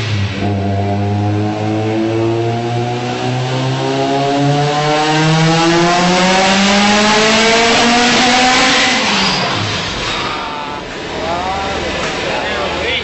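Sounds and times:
car engine revving at full throttle: 0.0s - 12.8s.

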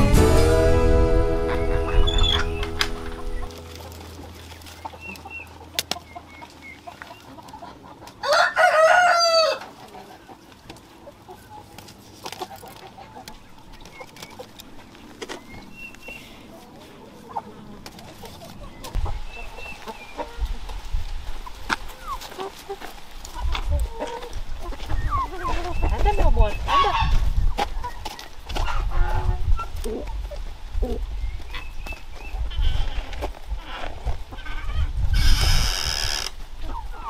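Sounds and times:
rooster crowing: 8.2s - 9.7s.

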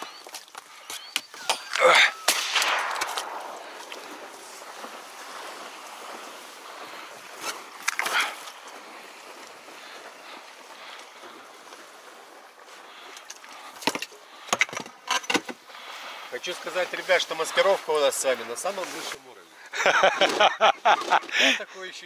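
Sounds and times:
reeds rustling: 0.0s - 14.4s, 15.7s - 21.4s
wind on microphone: 2.2s - 7.4s
loud sound: 2.4s - 4.6s.

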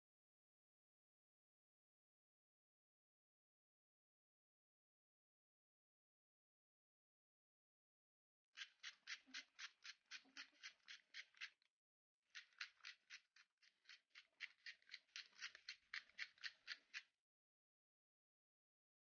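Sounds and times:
pepper mill grinding: 8.6s - 11.5s, 12.4s - 17.0s.

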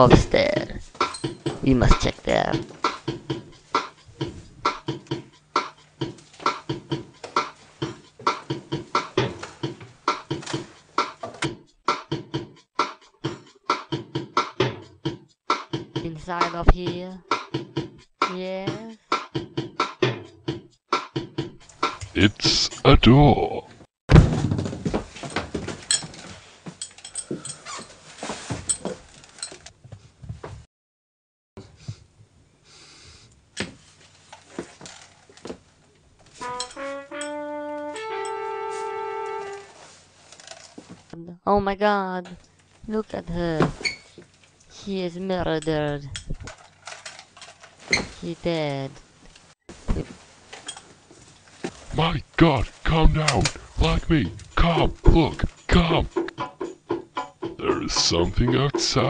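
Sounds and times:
music with fast percussive beat: 0.1s - 22.6s, 52.8s - 59.0s.

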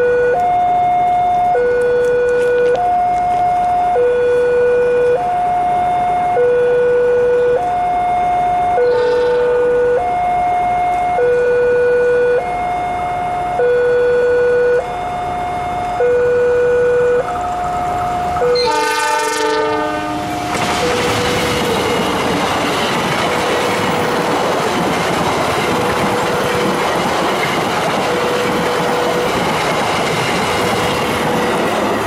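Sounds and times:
diesel locomotive two-tone horn: 0.0s - 22.6s, 25.5s - 26.9s, 27.8s - 32.0s
train wheels clickety-clack on rails: 0.4s - 6.4s, 17.2s - 32.0s.

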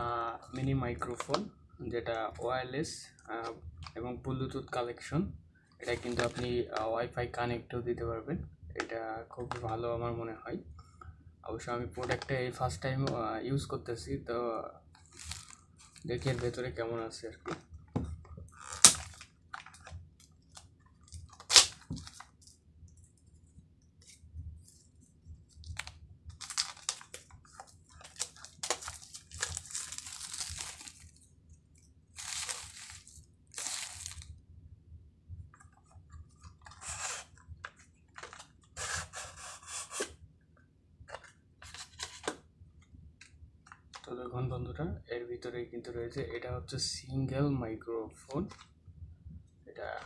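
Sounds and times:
cardboard box rustling: 25.7s - 31.1s, 32.2s - 34.2s.

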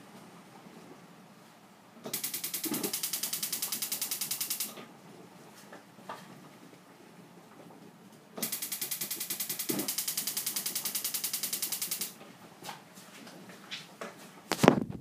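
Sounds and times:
gas stove igniter clicking: 8.4s - 12.2s.

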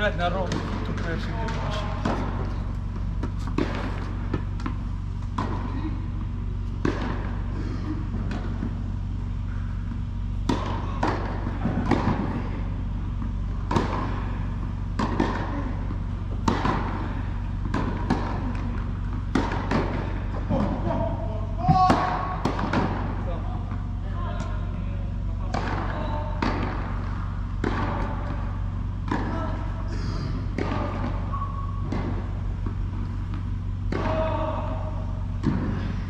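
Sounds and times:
steady low hum: 0.0s - 36.0s
tennis balls bouncing and struck: 0.2s - 36.0s.

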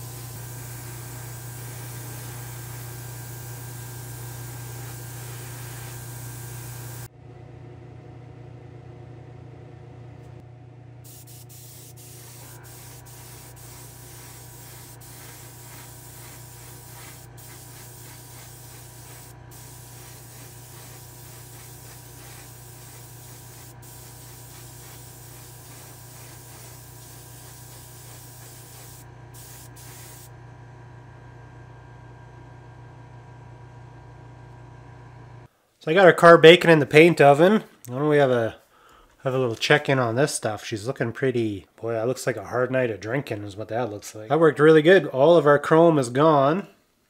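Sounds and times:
airbrush hissing: 0.0s - 7.1s, 11.1s - 30.3s.

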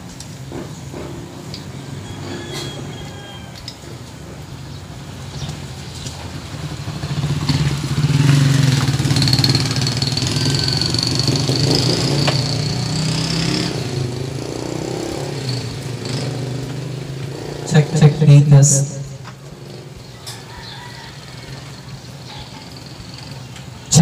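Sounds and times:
speaker low hum: 17.7s - 19.4s.

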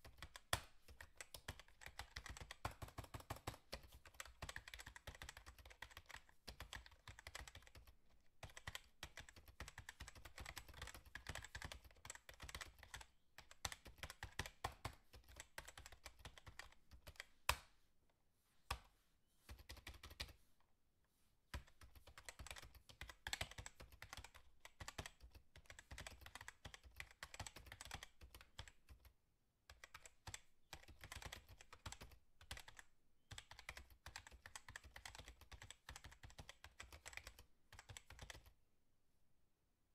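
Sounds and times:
rapid light clicks and taps: 0.0s - 17.6s.

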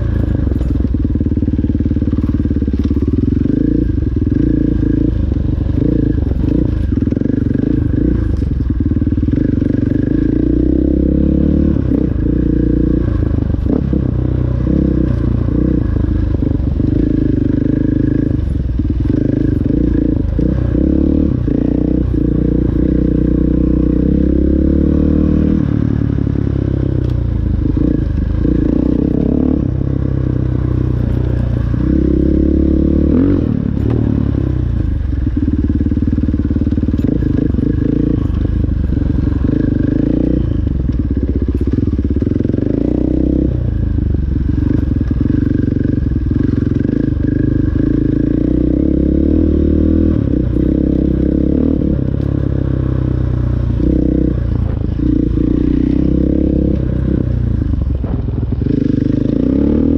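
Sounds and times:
dirt bike engine revving: 27.6s - 34.6s, 44.6s - 59.9s.

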